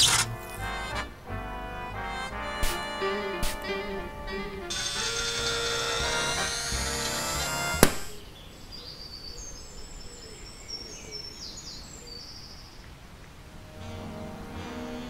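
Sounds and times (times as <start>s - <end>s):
music: 0.0s - 7.9s, 13.6s - 15.0s
background hiss: 0.0s - 15.0s.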